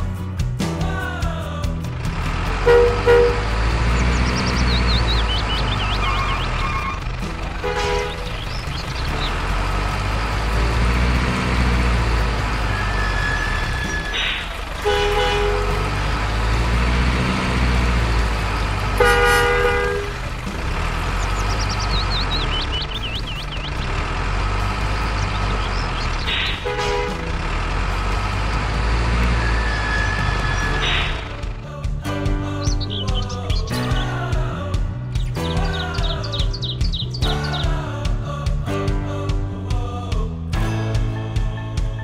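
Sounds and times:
heavy truck engine running: 0.0s - 42.0s
truck horn: 2.2s - 31.6s.

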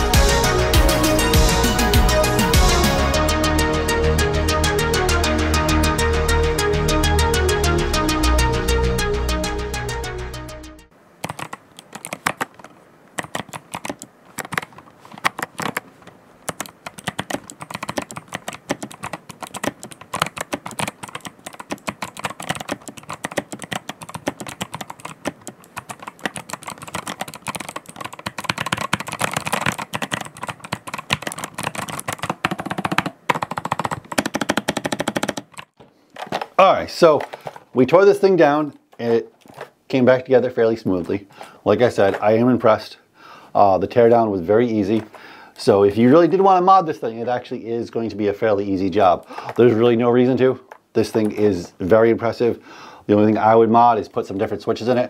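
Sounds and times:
background music: 0.0s - 10.9s
fast clicky keyboard typing: 11.2s - 35.8s, 50.7s - 51.6s.

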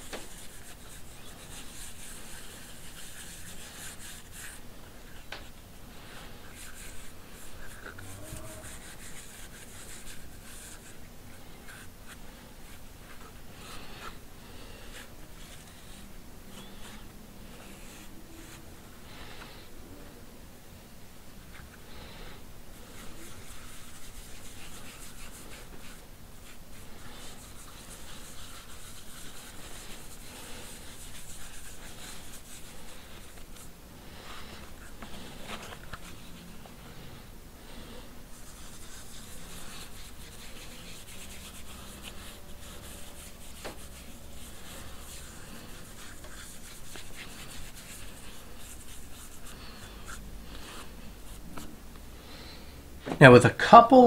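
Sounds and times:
dauber rubbing on leather: 0.0s - 5.3s, 6.4s - 14.2s, 22.7s - 36.6s, 38.3s - 51.5s.

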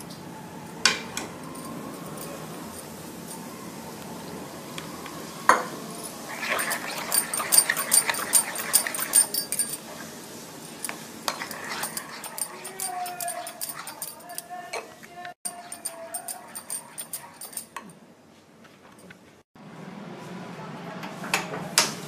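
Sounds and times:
spoon clinking in glass bowl: 6.3s - 10.0s, 10.7s - 14.6s, 15.5s - 17.9s.

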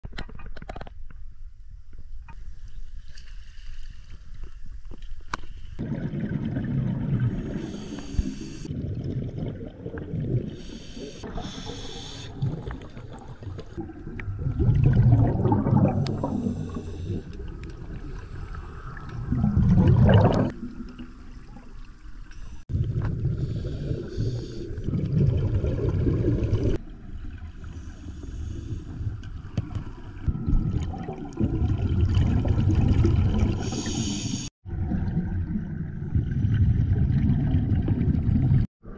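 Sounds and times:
exhaust bubbling underwater: 5.8s - 21.6s, 22.7s - 27.6s, 30.1s - 38.7s
regulator inhale hiss: 7.5s - 8.7s, 10.6s - 12.4s, 16.1s - 17.4s, 23.3s - 24.8s, 27.6s - 29.1s, 33.6s - 34.5s.

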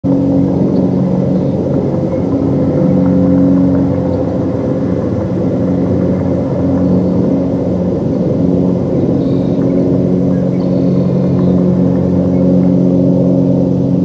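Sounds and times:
engine running with rumble: 0.0s - 14.0s.

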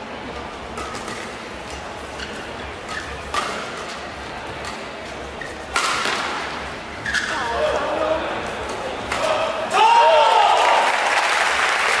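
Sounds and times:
large hall background noise: 0.0s - 12.0s
rackets striking shuttlecock: 2.8s - 7.4s, 8.6s - 9.5s.

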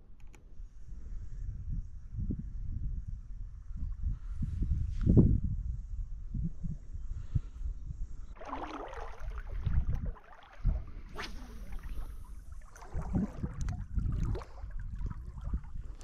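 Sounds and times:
wind buffeting microphone: 0.8s - 16.0s
water sloshing at lake edge: 8.3s - 16.0s.

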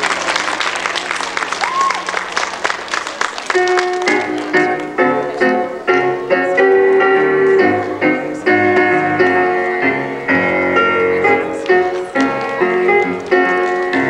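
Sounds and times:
piano music: 3.4s - 14.0s.

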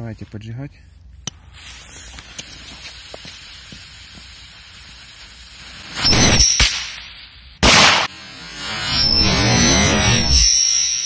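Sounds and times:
faint crackles: 0.8s - 6.0s
firecracker fuse hissing: 1.1s - 11.0s
firecracker sharp crack: 1.2s - 8.2s
loud hissing whistle: 1.6s - 7.5s, 8.1s - 11.0s.

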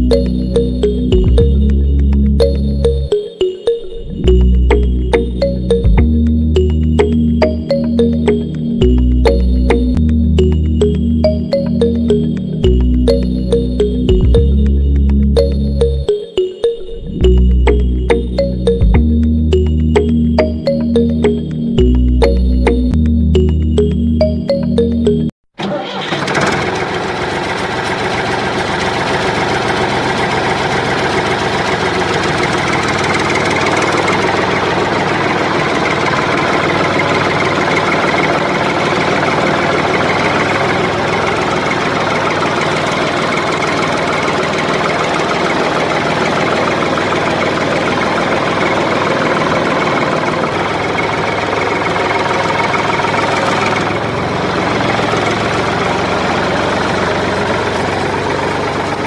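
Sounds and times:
tractor engine idling: 25.6s - 59.0s.

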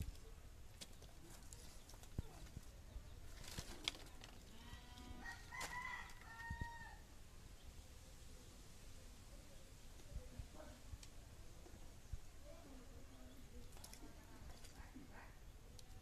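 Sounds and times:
rooster crowing faintly: 4.6s - 7.1s.

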